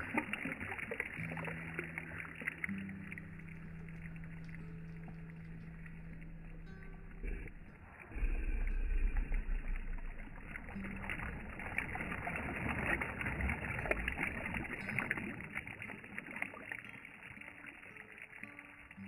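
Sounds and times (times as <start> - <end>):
low rumble: 0.0 - 15.0
waves splashing over rocks: 9.1 - 18.0.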